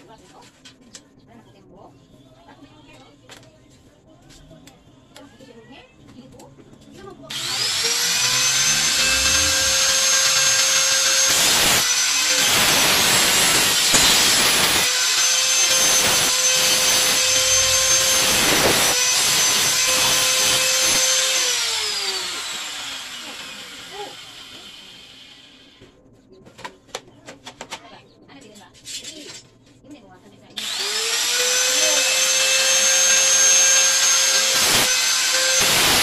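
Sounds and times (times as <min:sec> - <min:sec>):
grinder disc cutting rod: 0:07.3 - 0:25.4, 0:30.6 - 0:36.0
angle grinder whine: 0:07.3 - 0:25.7, 0:30.6 - 0:36.0.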